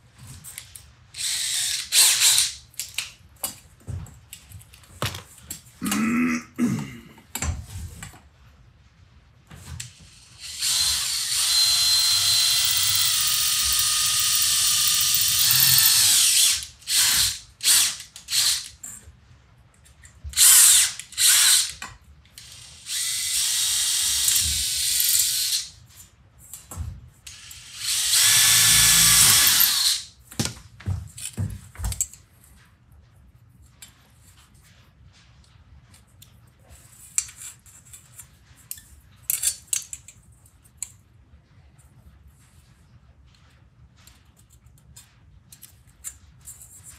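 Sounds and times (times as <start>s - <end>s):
cordless drill boring metal: 1.2s - 2.6s, 10.4s - 18.7s, 20.4s - 21.8s, 22.4s - 25.7s, 27.3s - 30.1s.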